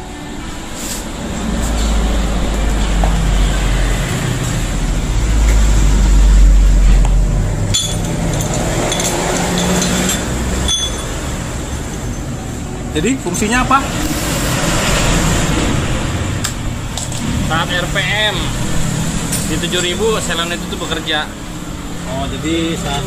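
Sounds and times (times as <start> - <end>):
metal tools clinking: 7.6 - 11.4.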